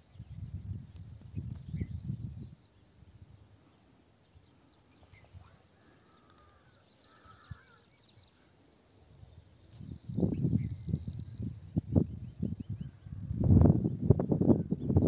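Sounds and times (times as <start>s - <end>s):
faint distant bird chirps: 0.0s - 15.0s.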